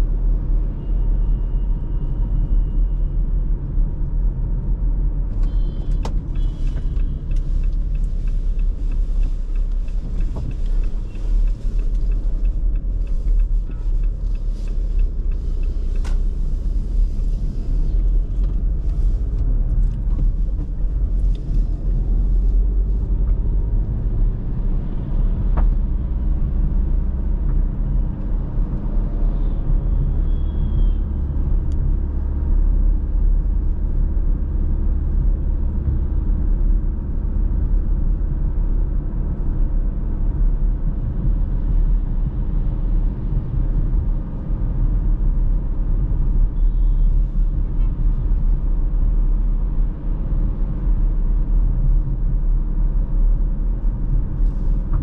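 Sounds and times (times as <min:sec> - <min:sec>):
car road and engine rumble: 0:00.0 - 0:55.0.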